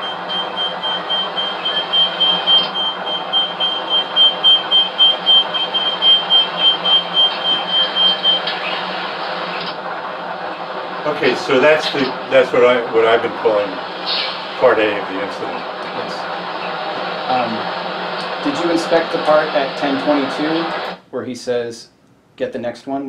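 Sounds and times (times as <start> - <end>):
electronic warning beeps: 0.0 - 9.8
bus interior noise: 0.0 - 21.0.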